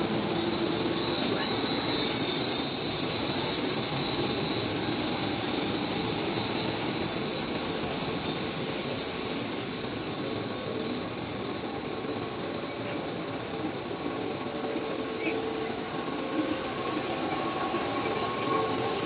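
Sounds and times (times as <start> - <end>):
machine running noise: 0.0 - 11.6
high machine whine: 0.0 - 19.0.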